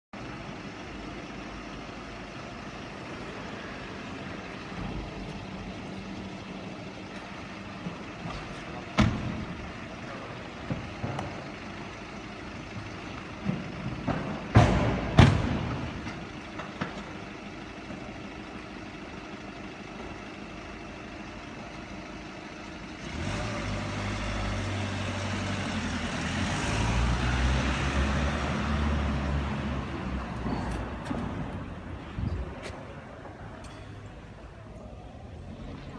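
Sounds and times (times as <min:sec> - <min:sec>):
car engine pulling away: 0:00.2 - 0:35.9
car doors slamming: 0:08.9 - 0:09.6, 0:14.2 - 0:16.0.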